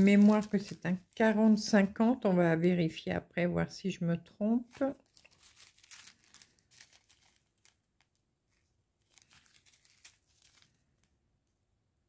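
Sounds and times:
plastic bags crinkling: 0.0 - 1.7, 4.6 - 11.1.

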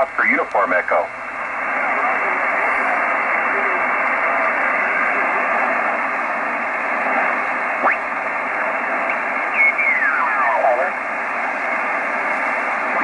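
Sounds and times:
radio static hiss: 0.0 - 13.0
radio tuning whistle: 7.8 - 8.2, 9.2 - 11.0.

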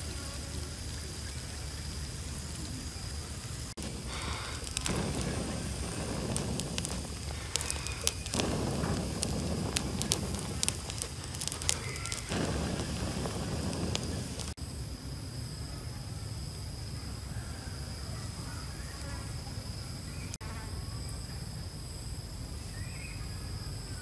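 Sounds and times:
fire hissing: 0.0 - 14.9
wood fire crackling: 0.6 - 14.6
sharp pops and snaps: 3.5 - 14.6.

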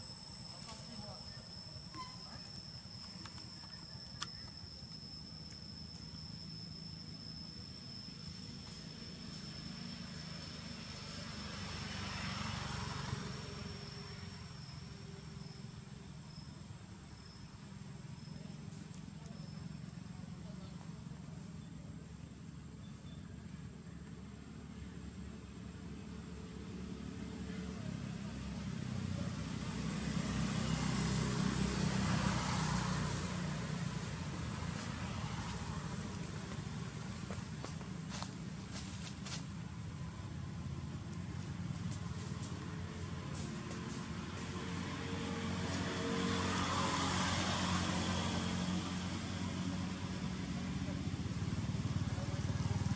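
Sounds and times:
insect trilling: 0.0 - 20.4
passing vehicle engine rumble: 0.0 - 52.9.

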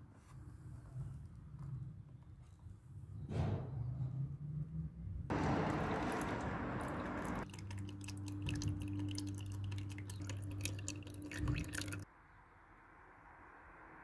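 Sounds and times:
oil dripping into a plastic tub: 5.3 - 12.0.

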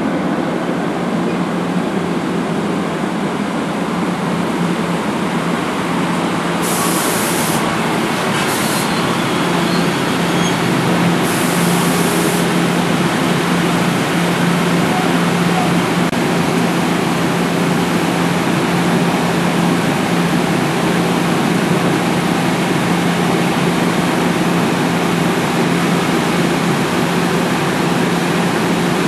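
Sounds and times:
electric locomotive humming: 0.0 - 29.0
train cars rolling past: 7.5 - 29.0.

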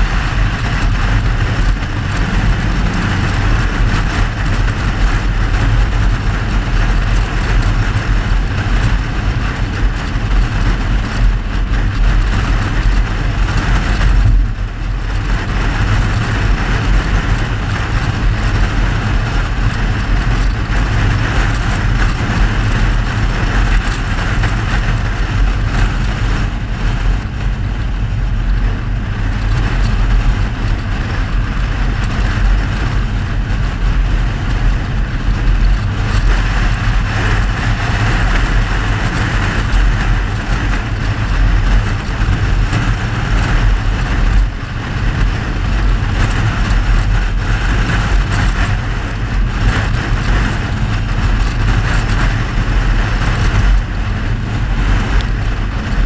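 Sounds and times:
car engine cruising: 0.0 - 56.0
wind noise: 0.0 - 56.0.

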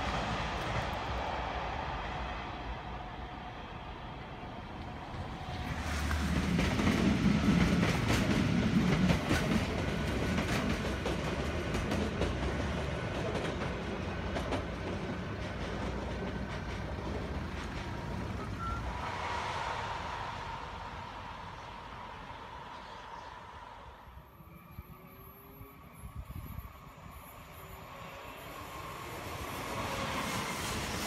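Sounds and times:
faint train whine: 0.0 - 31.0
train wheels clicking on rail joints: 4.8 - 19.1.

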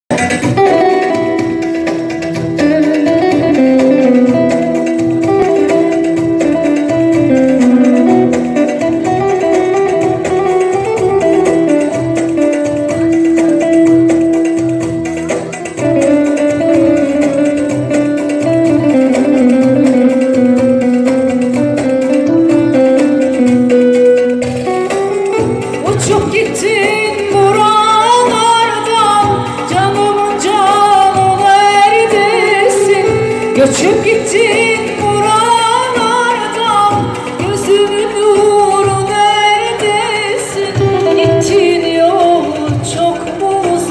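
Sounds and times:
low keyboard accompaniment: 0.1 - 43.9
plucked keyboard melody: 0.1 - 43.9
woman singing into microphone: 21.8 - 43.9.

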